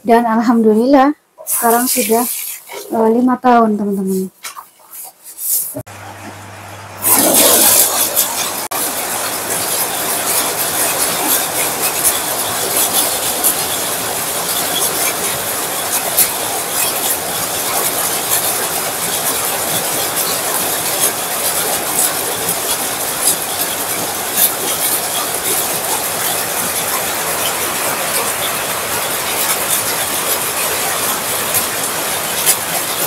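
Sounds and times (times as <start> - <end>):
heavy rain on tiled patio: 7.0 - 33.0
rain splashing into puddles: 7.0 - 33.0.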